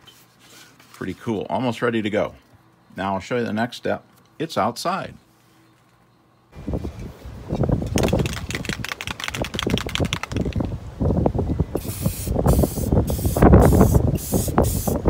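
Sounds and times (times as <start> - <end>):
wind on microphone: 6.6 - 15.0
fast clicks: 7.8 - 10.7
aerosol spray can hissing: 11.8 - 15.0.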